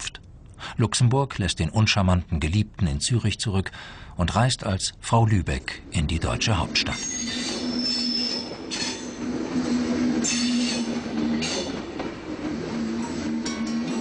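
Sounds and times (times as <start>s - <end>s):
train on rails: 5.2s - 14.0s
wheel squeal: 6.9s - 11.8s.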